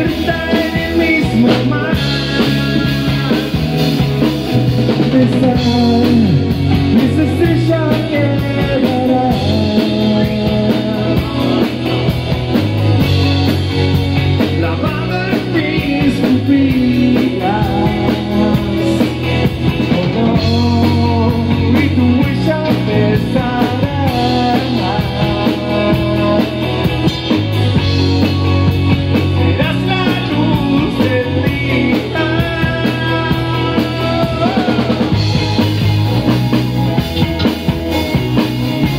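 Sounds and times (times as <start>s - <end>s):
drum kit: 0.0s - 38.9s
electric bass: 0.0s - 38.9s
electric guitar: 0.0s - 38.9s.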